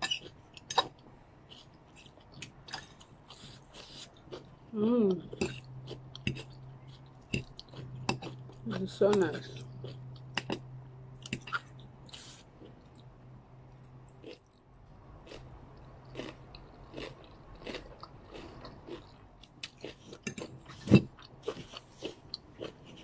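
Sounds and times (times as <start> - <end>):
chewing noodles: 0.1 - 13.1, 13.7 - 23.0.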